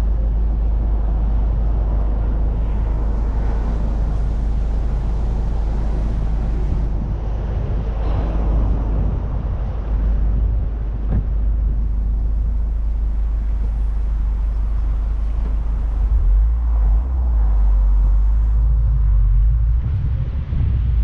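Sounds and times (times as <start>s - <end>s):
car engine exhaust rumble: 0.0s - 21.0s.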